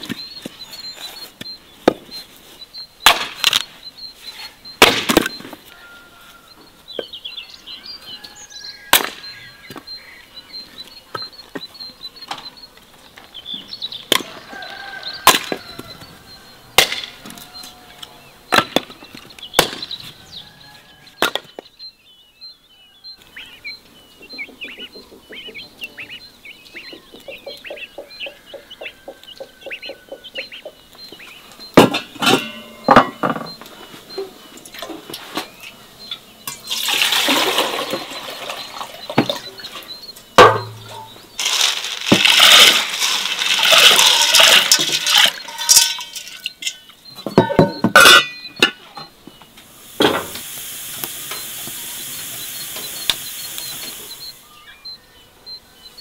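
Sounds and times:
birds chirping: 0.0s - 56.0s
axe chopping logs: 3.0s - 3.6s, 4.8s - 5.5s, 8.9s - 9.2s, 16.8s - 17.1s, 31.8s - 33.0s.

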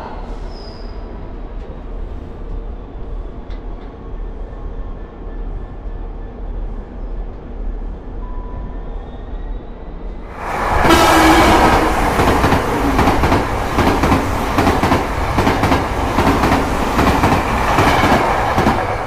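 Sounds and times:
diesel train engine passing: 9.7s - 19.0s
wheels clacking over rail joints: 11.0s - 19.0s.

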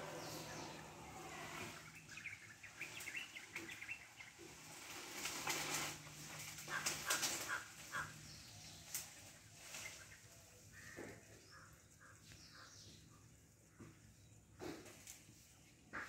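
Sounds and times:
leaves and branches rustling and snapping: 2.6s - 11.4s, 14.7s - 15.4s.

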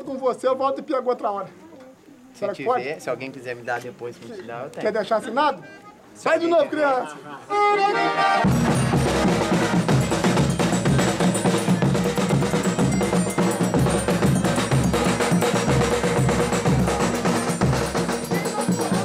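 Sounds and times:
accordion held notes: 5.5s - 6.1s, 7.4s - 19.0s
rhythmic percussion: 8.0s - 19.0s
drums beating: 8.4s - 19.0s.

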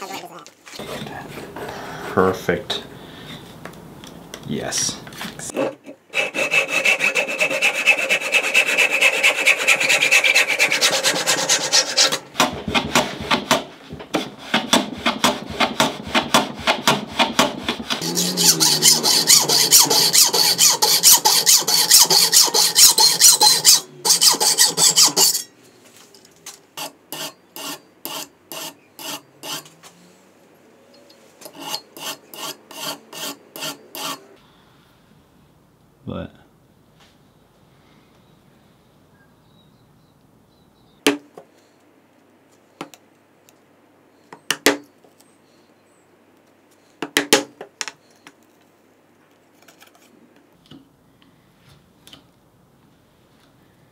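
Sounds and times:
hacksaw rasping strokes: 5.6s - 12.2s, 14.2s - 25.5s, 26.8s - 29.7s, 31.5s - 34.2s
backsaw cutting wood: 6.1s - 13.4s, 14.2s - 25.5s, 31.5s - 34.3s.

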